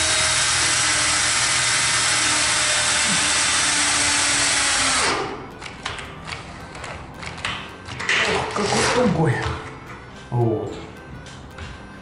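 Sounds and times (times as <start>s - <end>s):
cordless drill driving screw: 0.0s - 5.3s.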